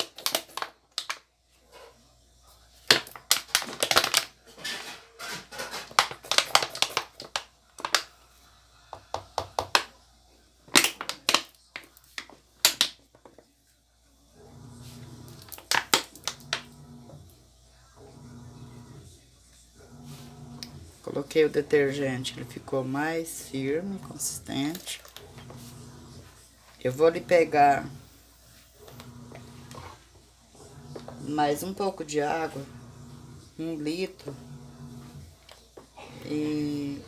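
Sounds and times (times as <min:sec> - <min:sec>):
plastic bottle crackling: 0:00.0 - 0:01.2, 0:02.9 - 0:04.4, 0:05.8 - 0:08.1, 0:10.7 - 0:13.4, 0:15.4 - 0:16.6.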